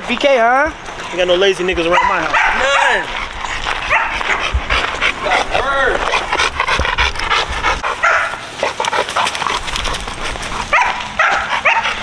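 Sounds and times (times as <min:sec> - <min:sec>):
dog barking: 0:01.8 - 0:03.1, 0:03.9 - 0:04.5, 0:08.0 - 0:08.4, 0:10.7 - 0:12.0
dog yelping: 0:01.8 - 0:09.7, 0:10.5 - 0:12.0.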